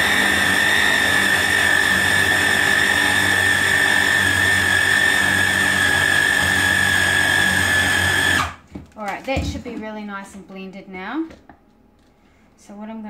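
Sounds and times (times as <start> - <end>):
food chopper motor whine: 0.0 - 8.6.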